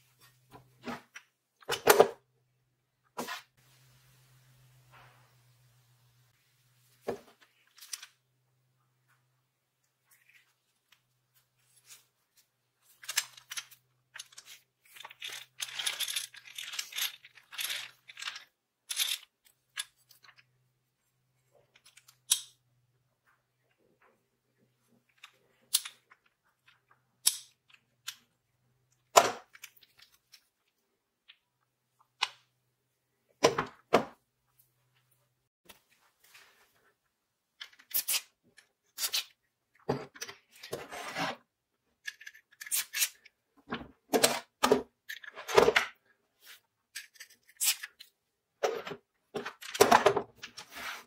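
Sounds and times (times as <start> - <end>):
hand drill gears clicking and rattling: 15.1 - 19.3.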